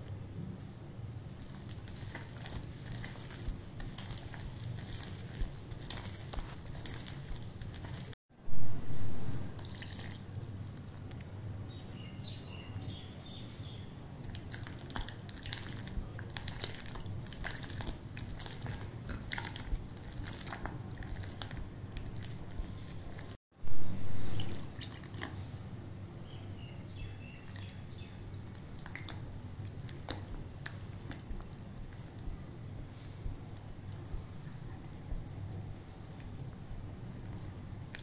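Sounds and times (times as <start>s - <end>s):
spatula squelching batter: 1.2s - 8.2s, 14.2s - 23.4s, 27.4s - 38.0s.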